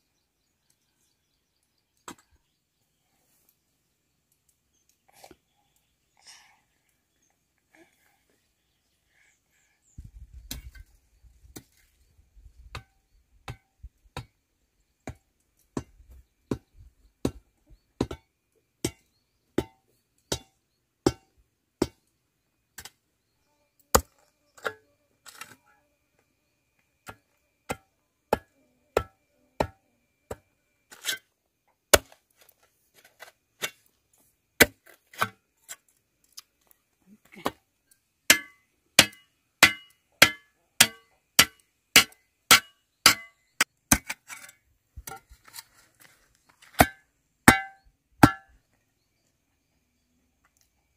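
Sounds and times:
hand tool striking: 38.3 - 45.3, 46.7 - 48.6.

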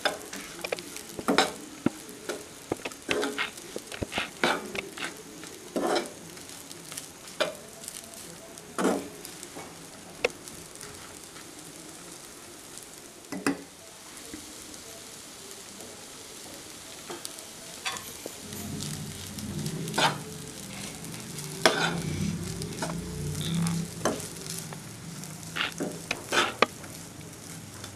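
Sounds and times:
rice sizzling in a pan: 0.0 - 27.9
spoon scraping a pan: 0.1 - 6.2, 17.1 - 27.0.

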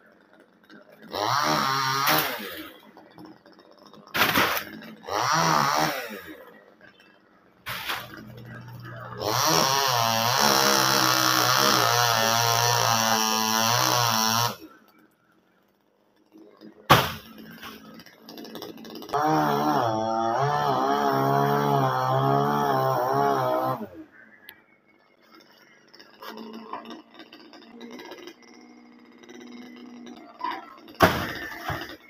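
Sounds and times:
chainsaw revving and cutting: 0.9 - 6.8, 7.7 - 15.0, 16.2 - 24.3, 25.3 - 32.0
sharp crack: 4.1 - 4.8, 16.9 - 17.8.

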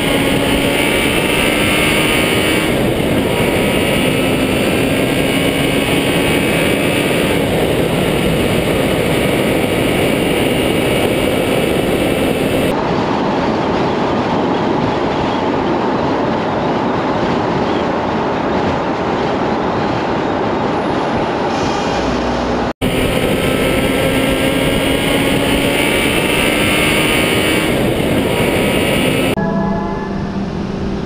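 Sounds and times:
vehicle road and wind noise: 0.0 - 29.4
faint engine tone: 28.3 - 31.0.

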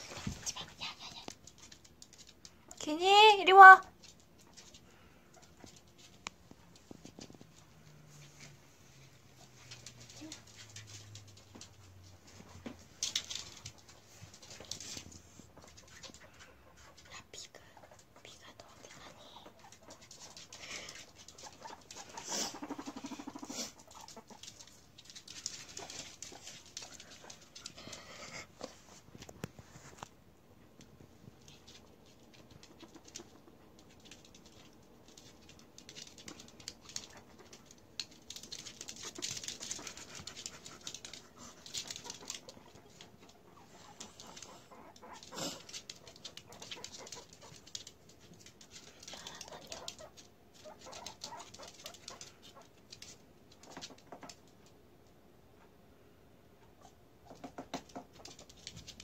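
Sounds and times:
guinea pigs scuffling and sniffing: 0.0 - 59.0
claws pattering on wooden floor: 18.8 - 30.2, 30.8 - 54.8.

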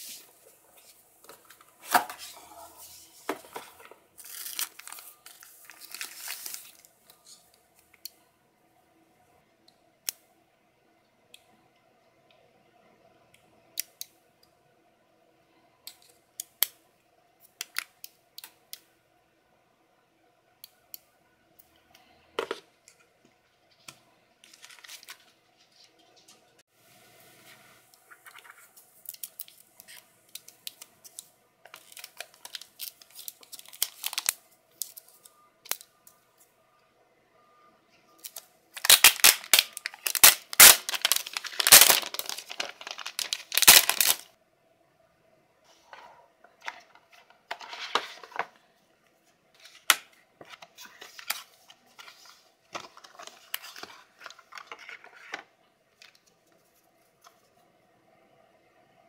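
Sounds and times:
packaging rustling and crinkling: 3.3 - 6.9, 28.1 - 35.8, 38.2 - 44.3
paper rustling: 31.7 - 35.1, 38.8 - 44.3, 49.6 - 57.5.

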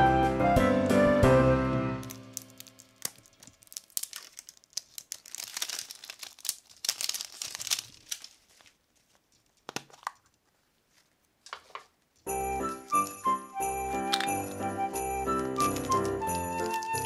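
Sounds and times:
plastic egg halves clicking apart: 2.0 - 7.3, 14.0 - 14.5
plastic wrapper crinkling and tearing: 2.0 - 11.9, 12.6 - 13.2, 13.9 - 17.0.

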